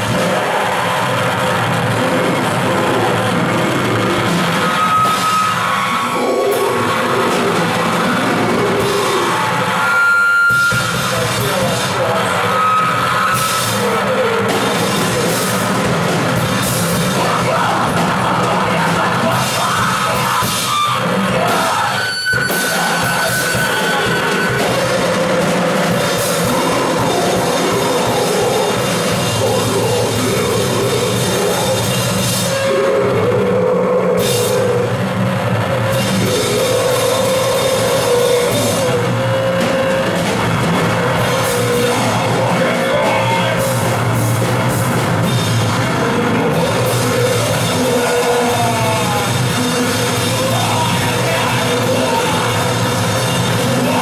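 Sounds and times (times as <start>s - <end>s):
drum kit with cymbals: 0.0s - 33.5s, 34.1s - 54.0s
rock band playing live: 0.0s - 33.5s, 34.2s - 54.0s.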